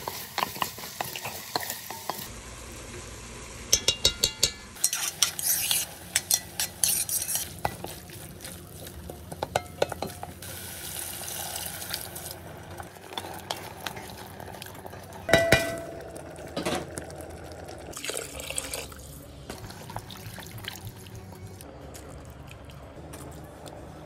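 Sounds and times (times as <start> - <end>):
wooden spoon stirring and scraping: 4.8 - 10.4
loud ringing knock on pot: 15.3 - 16.1.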